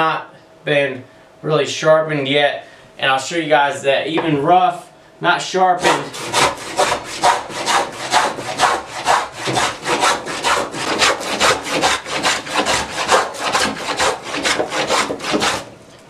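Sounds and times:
wooden plane strokes on board: 5.8s - 15.7s.

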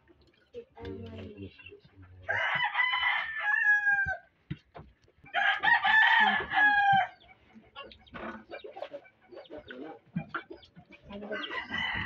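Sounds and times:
rooster crowing: 2.3s - 4.3s, 5.3s - 7.2s, 11.3s - 12.0s.

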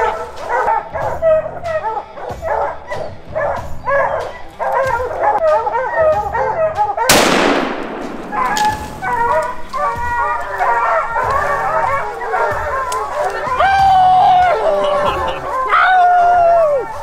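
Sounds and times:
hounds barking and bawling: 0.0s - 7.3s, 7.9s - 17.0s
rifle shot with echo: 7.1s - 9.8s.

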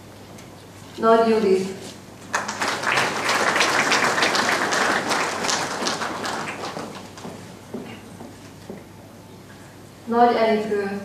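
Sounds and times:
audience applauding: 2.3s - 7.6s.

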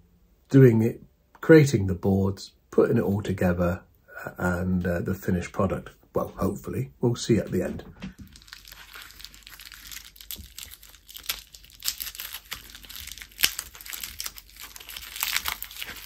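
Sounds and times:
plastic bag crinkling: 8.1s - 16.0s.

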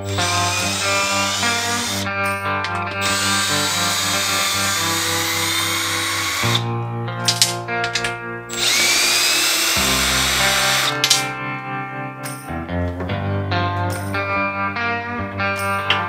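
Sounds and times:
cordless drill motor whining: 0.0s - 2.0s, 2.6s - 6.6s, 8.5s - 11.2s
guitar music: 0.0s - 16.0s
sharp clicks: 2.6s - 4.9s, 7.3s - 9.9s, 10.7s - 11.3s.

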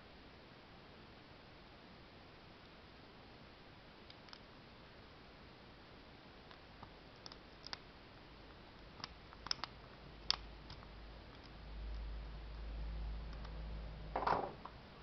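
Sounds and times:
lock pick clicking: 9.0s - 12.0s.

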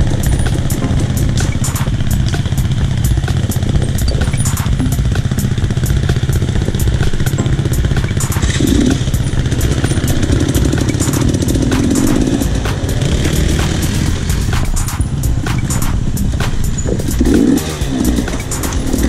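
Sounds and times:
dirt bike engine running: 0.0s - 19.0s.

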